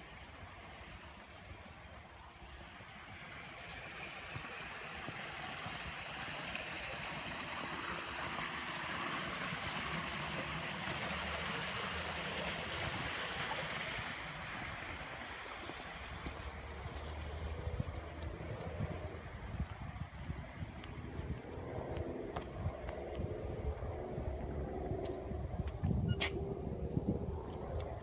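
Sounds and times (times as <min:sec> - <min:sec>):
water rushing in a pond: 0:00.0 - 0:25.5
wind rumbling on microphone: 0:11.8 - 0:28.0.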